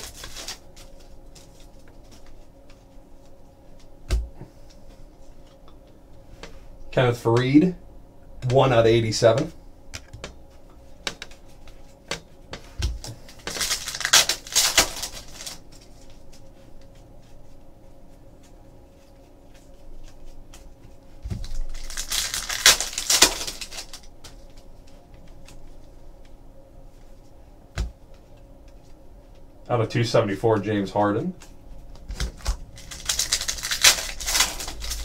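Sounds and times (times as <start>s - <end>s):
foil wrapper rustling: 0.0s - 2.4s, 13.0s - 16.4s, 19.6s - 24.8s, 32.0s - 35.0s.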